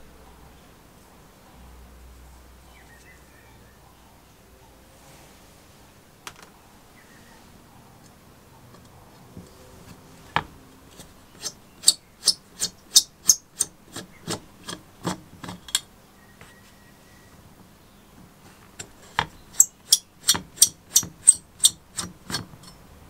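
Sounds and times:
screwdriver turning screws: 0:10.4 - 0:15.9, 0:18.7 - 0:22.8.

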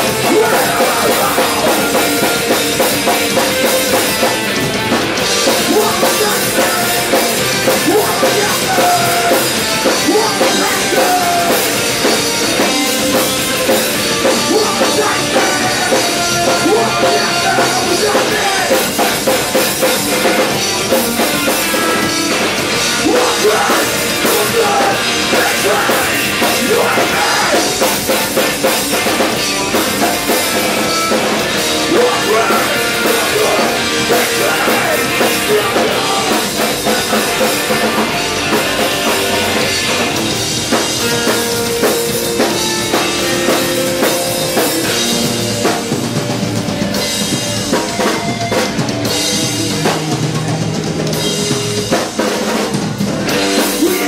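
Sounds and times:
live rock band playing: 0:00.0 - 0:54.0.

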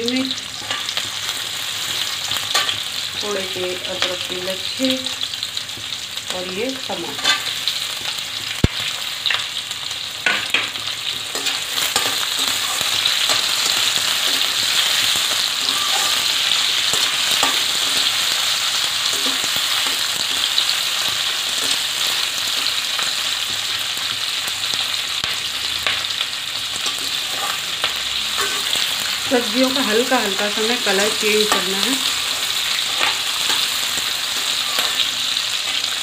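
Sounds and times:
vegetables sizzling in hot oil: 0:00.0 - 0:36.0
spatula scraping a pan: 0:10.2 - 0:21.9, 0:26.8 - 0:29.2, 0:30.9 - 0:36.0.

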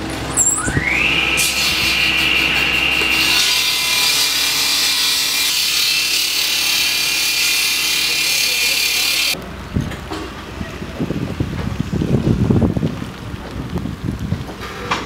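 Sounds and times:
power saw whining: 0:00.0 - 0:09.4.

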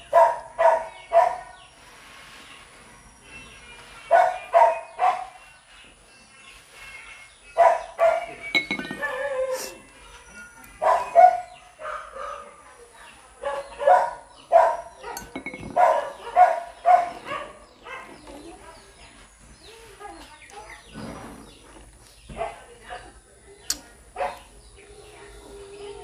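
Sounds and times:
dog barking: 0:00.1 - 0:01.6, 0:04.1 - 0:05.4, 0:07.6 - 0:08.4, 0:10.8 - 0:12.6, 0:13.4 - 0:18.2, 0:24.2 - 0:24.5.

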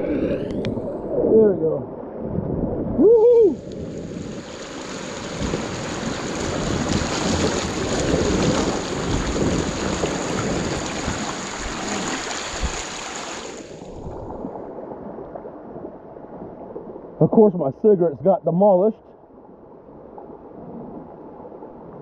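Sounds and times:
water rushing over rocks: 0:02.9 - 0:14.6.

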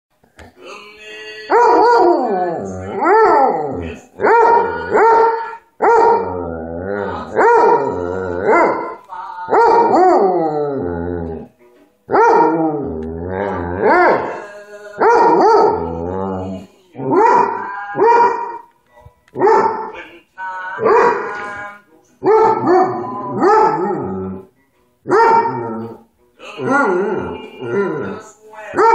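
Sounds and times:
music: 0:00.2 - 0:28.9
dog howling: 0:01.5 - 0:11.5, 0:12.1 - 0:14.4, 0:15.0 - 0:18.6, 0:22.2 - 0:24.5, 0:26.6 - 0:28.9.

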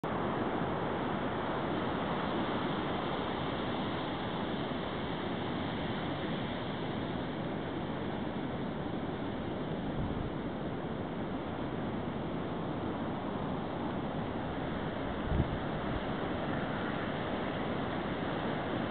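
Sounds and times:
ocean surf: 0:00.1 - 0:18.9
wind on microphone: 0:14.3 - 0:17.2.

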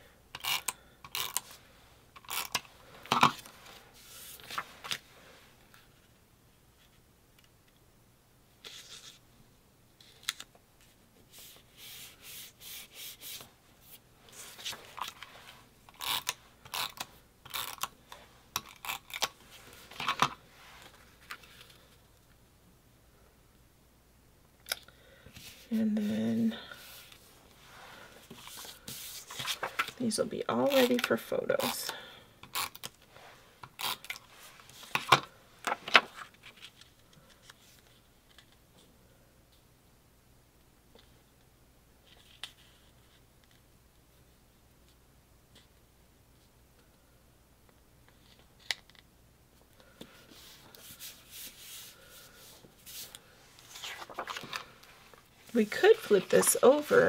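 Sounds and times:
paper rustling: 0:03.0 - 0:05.1, 0:28.2 - 0:30.1, 0:34.5 - 0:38.6, 0:50.0 - 0:57.0
tape runner rubbing on card: 0:16.0 - 0:17.8.

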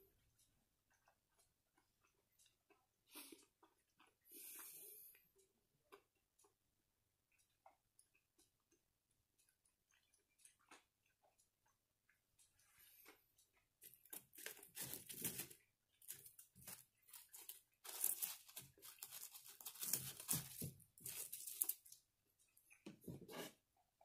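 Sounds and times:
packaging tearing and crinkling: 0:14.3 - 0:15.5, 0:16.1 - 0:21.8.

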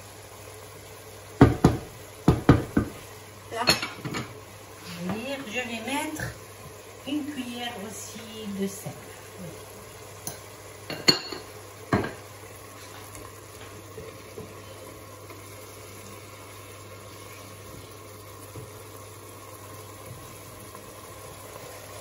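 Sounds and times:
pots simmering hiss: 0:00.0 - 0:22.0
wooden spoon stirring in pot: 0:12.1 - 0:22.0.

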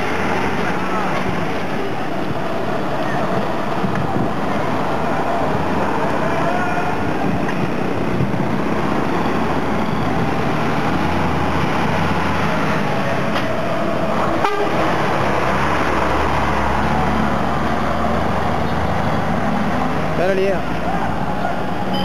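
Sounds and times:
vehicle engine rumbling: 0:00.0 - 0:22.0
car horns tooting: 0:14.4 - 0:14.9.

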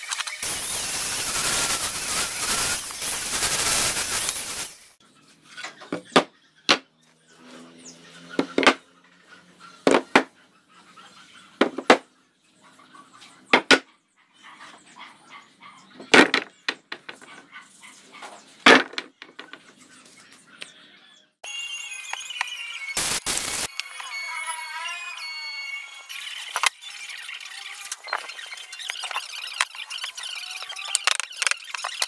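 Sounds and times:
wooden boards knocking: 0:11.6 - 0:12.0.

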